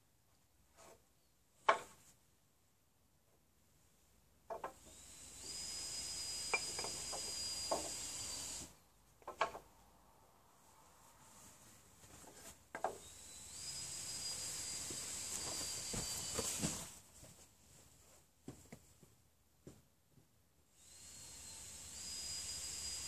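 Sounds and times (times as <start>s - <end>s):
sharp wooden knocks: 1.6s - 2.0s
cordless drill in wood: 4.6s - 8.8s, 12.8s - 16.9s, 20.8s - 23.0s.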